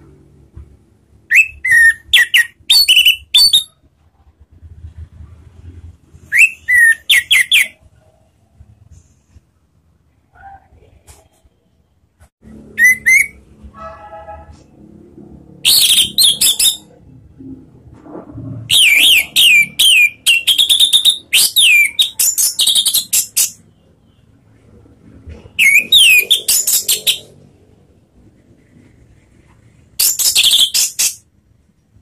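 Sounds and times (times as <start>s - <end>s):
thrush singing whistled notes: 1.3s - 3.8s, 6.3s - 7.8s, 12.7s - 13.4s, 15.6s - 16.9s, 18.7s - 23.6s, 25.6s - 27.3s.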